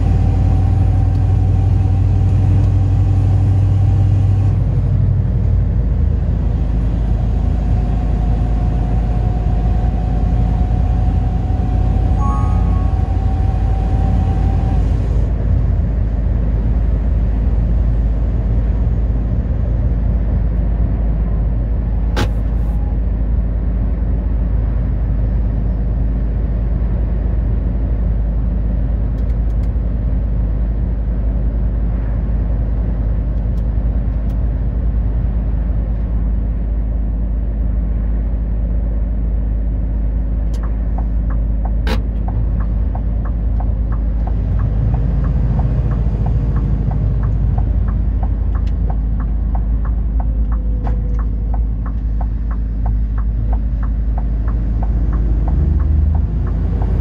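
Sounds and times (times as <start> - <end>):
vehicle engine and road noise: 0.0 - 57.0.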